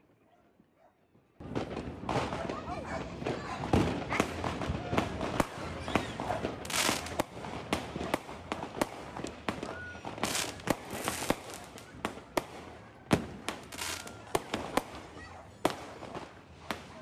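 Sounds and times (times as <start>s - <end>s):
fireworks bangs and cracks: 1.4s - 17.0s
fireworks hissing bursts: 5.4s - 7.6s, 8.3s - 11.9s, 13.4s - 15.1s.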